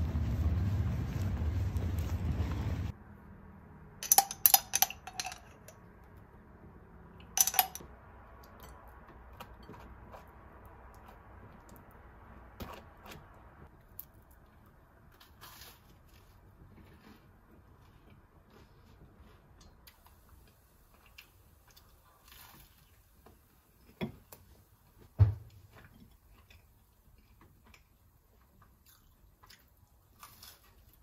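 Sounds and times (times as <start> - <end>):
knife clinking against glass jar: 4.0 - 5.7, 7.4 - 7.8.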